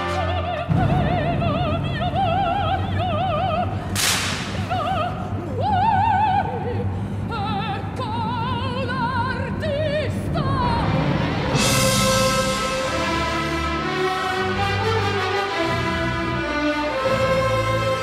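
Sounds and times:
orchestra playing: 0:00.0 - 0:01.7, 0:10.9 - 0:18.0
operatic soprano singing: 0:00.0 - 0:18.0.

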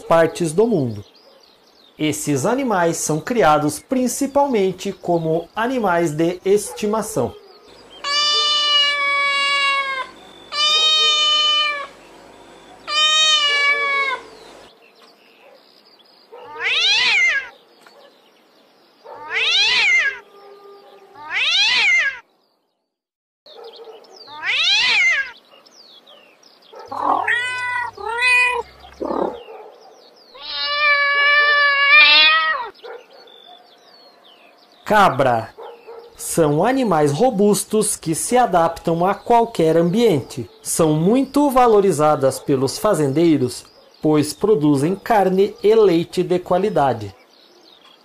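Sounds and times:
cats meowing: 0:08.0 - 0:12.0, 0:12.8 - 0:14.4, 0:16.4 - 0:17.6, 0:19.1 - 0:22.2, 0:24.3 - 0:25.4, 0:26.9 - 0:29.4, 0:30.3 - 0:32.8.

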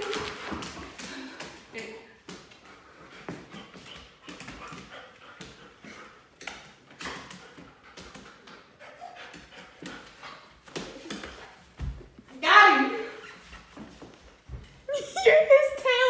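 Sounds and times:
dog panting: 0:02.5 - 0:11.7.

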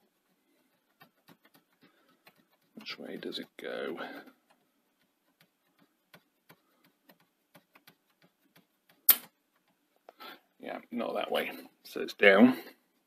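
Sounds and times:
sharp loud click: 0:09.1 - 0:09.3.

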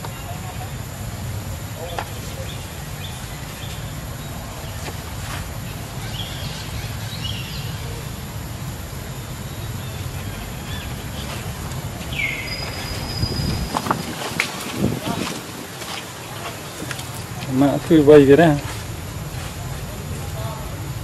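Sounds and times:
faint high chirps: 0:00.0 - 0:14.1
rising high call: 0:00.0 - 0:16.8.

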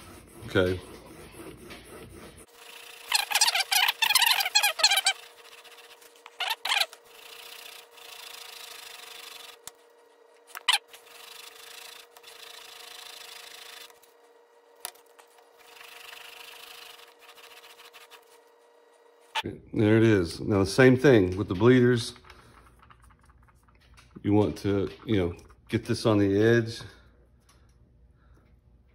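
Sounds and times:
blade rasping on abrasive sheet: 0:00.0 - 0:09.6, 0:10.6 - 0:14.0, 0:15.6 - 0:18.4.

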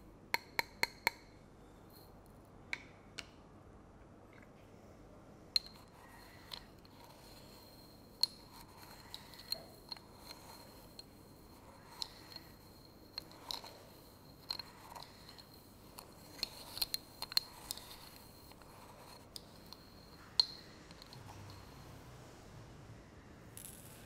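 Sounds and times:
spoon scraping through sugar: 0:05.7 - 0:22.0.

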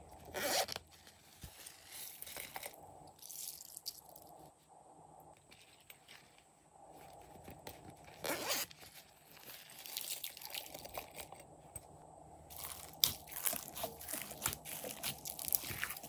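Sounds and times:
slime crunching and crackling: 0:09.3 - 0:11.3, 0:12.5 - 0:16.0.

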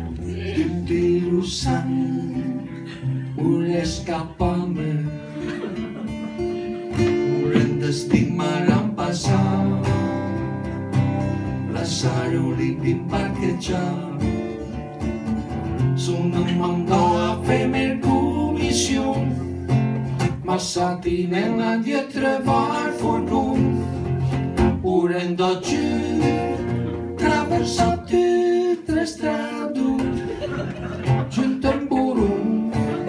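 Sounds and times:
acoustic guitar strumming: 0:00.0 - 0:33.0
man singing into microphone: 0:00.1 - 0:05.8, 0:07.0 - 0:10.3, 0:11.6 - 0:14.4, 0:16.0 - 0:19.5, 0:20.2 - 0:23.8, 0:24.8 - 0:26.5, 0:27.2 - 0:30.5, 0:31.2 - 0:33.0.

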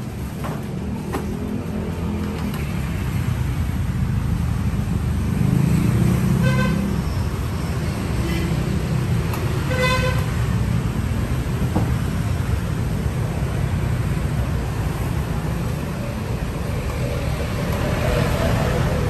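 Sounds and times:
road traffic rumble: 0:00.0 - 0:19.0
vehicle horn toots: 0:09.7 - 0:10.3.

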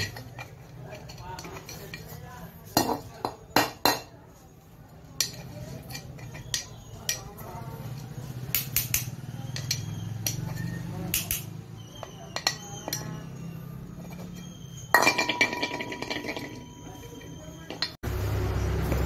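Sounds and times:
screwdriver scraping metal: 0:00.0 - 0:03.3, 0:04.9 - 0:15.0.

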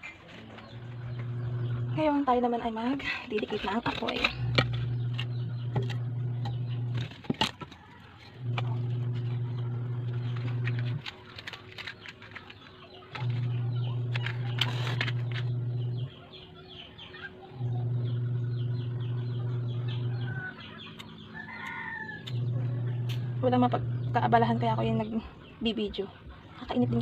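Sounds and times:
low steady hum: 0:00.0 - 0:27.0
firewood clicks and knocks: 0:07.0 - 0:08.6.

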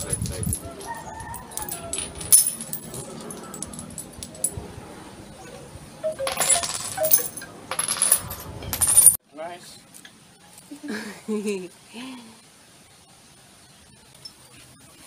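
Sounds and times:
seashells clinking and rattling: 0:00.0 - 0:04.6, 0:06.2 - 0:09.2.

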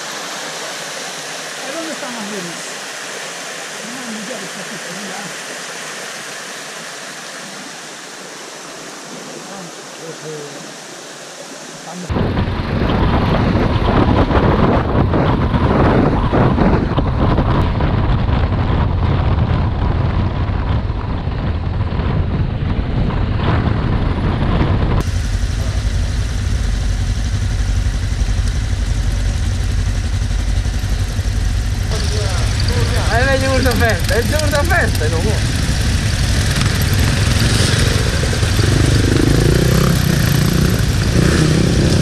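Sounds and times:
wind rush on microphone: 0:00.0 - 0:42.0
motorcycle engine: 0:12.1 - 0:42.0
motorcycles idling: 0:25.0 - 0:42.0.

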